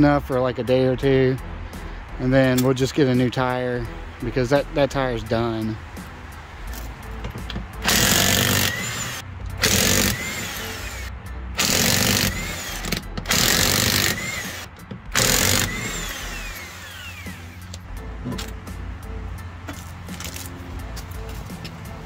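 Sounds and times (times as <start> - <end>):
impact wrench hammering: 7.3 - 11.0, 11.6 - 17.4
motor whining down: 7.8 - 17.7.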